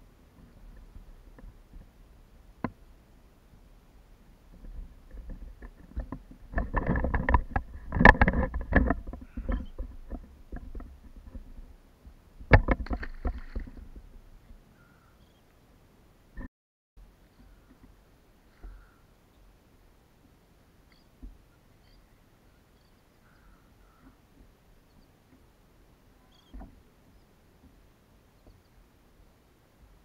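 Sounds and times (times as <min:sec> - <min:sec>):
knocks against a plastic kayak: 0:12.4 - 0:13.9.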